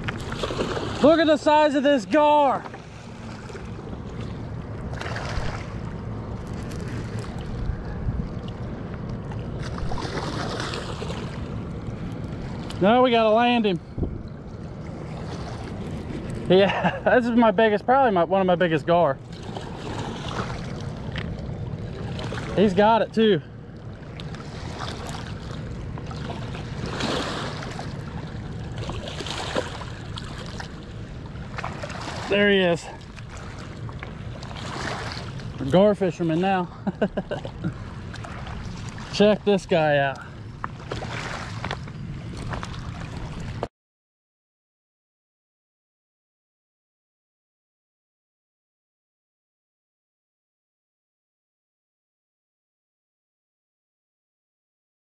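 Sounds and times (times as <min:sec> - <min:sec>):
fish splashing at water surface: 0:00.0 - 0:01.2, 0:02.8 - 0:05.9, 0:09.6 - 0:11.5, 0:24.3 - 0:30.8
steady low rumble: 0:00.0 - 0:43.7
water lapping and splashing: 0:00.0 - 0:43.7.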